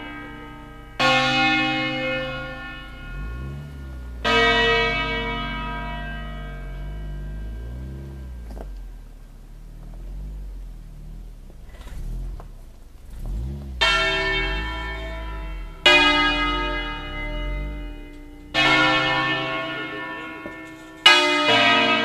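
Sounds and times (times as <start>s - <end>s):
church bell strokes: 0.0s - 9.0s, 13.1s - 22.0s
low rumble: 0.0s - 21.7s.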